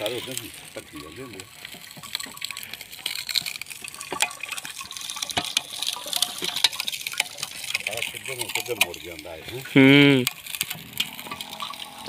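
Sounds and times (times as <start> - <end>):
juice splashing into steel bucket: 0.0 - 12.0
sharp clicks and cracks: 0.0 - 12.0.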